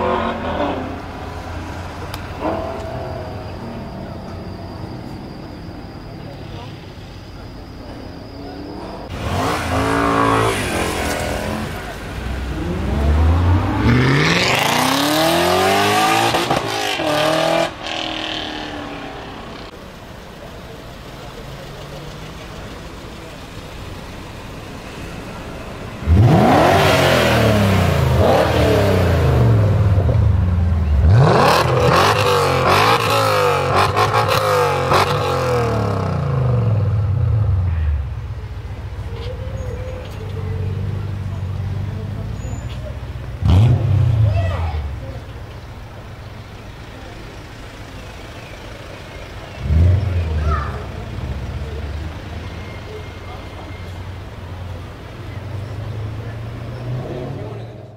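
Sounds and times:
car engine accelerating hard: 8.7s - 19.8s, 21.2s - 37.9s, 40.6s - 45.2s.

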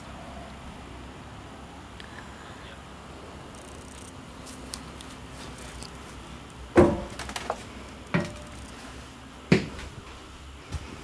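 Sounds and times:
heavy footsteps on metal steps: 6.7s - 8.8s, 9.5s - 11.0s.

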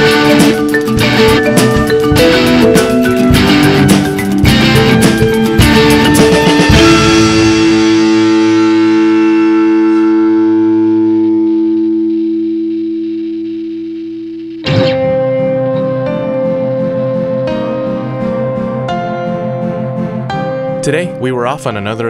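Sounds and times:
drum hit: 0.0s - 10.3s, 14.6s - 20.8s
soft music: 0.0s - 12.4s, 14.7s - 22.0s
distorted electric guitar chord: 0.0s - 21.2s.

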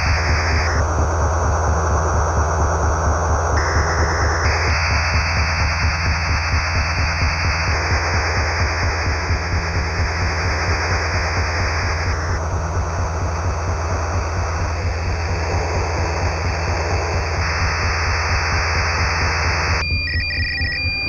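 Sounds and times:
low hum: 0.0s - 21.0s
radio static hiss: 0.0s - 21.0s
high electronic beeps pulsing: 13.1s - 21.0s.

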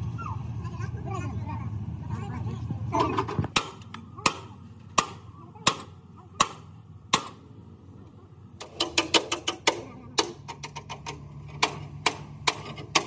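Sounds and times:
hammer striking steel rail: 3.6s - 7.4s, 8.6s - 13.0s.

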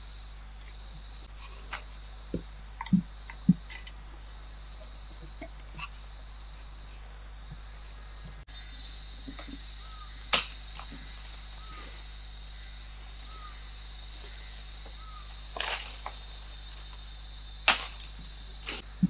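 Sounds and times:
high insect whine: 0.0s - 19.0s
cracks and rustles in undergrowth: 0.5s - 4.2s, 9.2s - 18.9s
bird chirping: 7.8s - 15.4s.

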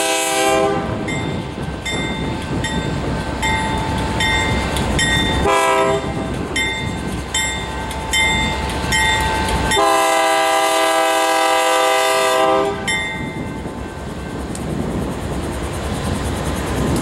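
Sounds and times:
locomotive air horn blasts: 0.0s - 1.1s, 5.4s - 6.3s, 9.7s - 12.9s
diesel locomotive engine: 0.0s - 17.0s.

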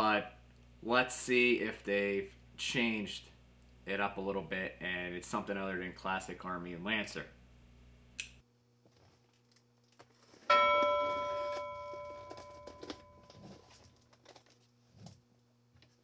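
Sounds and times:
bell chime: 10.5s - 13.6s.

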